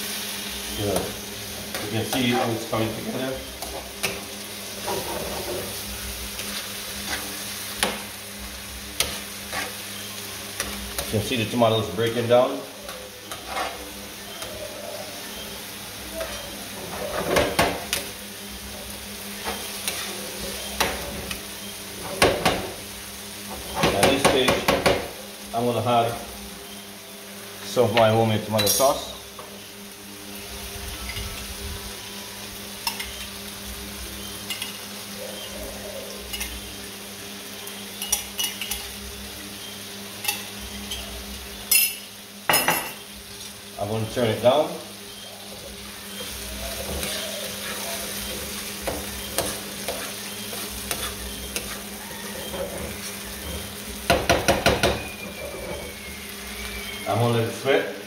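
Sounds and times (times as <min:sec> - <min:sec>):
vegetables sizzling in a frying pan: 0:00.0 - 0:58.0
metal spoon scraping a pan: 0:06.4 - 0:07.9, 0:09.0 - 0:11.2, 0:13.2 - 0:14.5, 0:19.4 - 0:21.4, 0:46.1 - 0:56.0.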